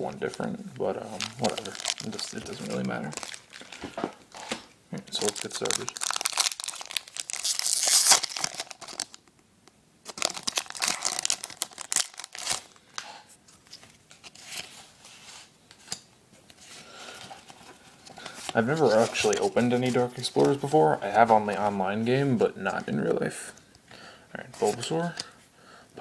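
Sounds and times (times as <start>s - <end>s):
foil wrapper tearing and crinkling: 1.2s - 3.9s, 5.2s - 9.3s, 10.1s - 12.8s.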